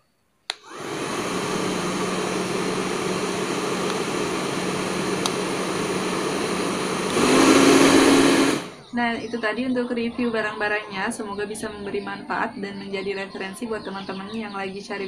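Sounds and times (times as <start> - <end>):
hair dryer switch click: 0.5 - 0.8, 3.8 - 4.1, 5.1 - 5.5
hair dryer running: 0.5 - 8.8.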